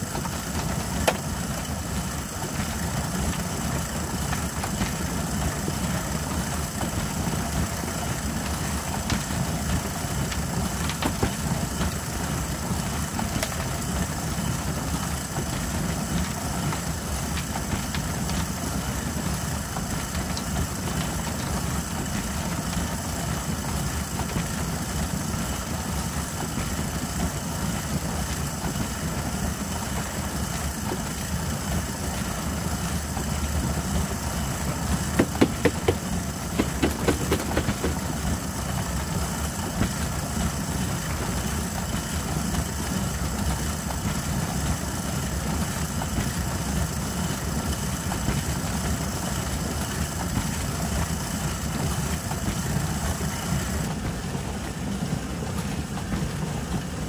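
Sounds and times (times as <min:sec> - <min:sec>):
sieve drum turning: 0:35.1 - 0:38.3
sharp knocks: 0:35.2 - 0:38.1.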